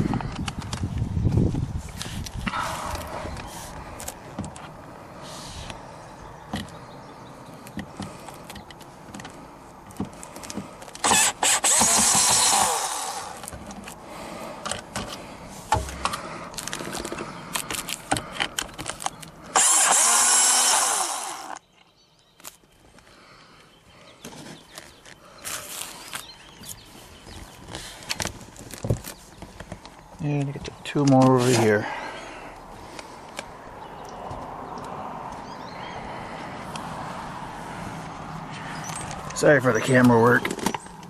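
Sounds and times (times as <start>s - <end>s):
power drill backing out screws: 11.0s - 13.7s, 18.9s - 21.6s.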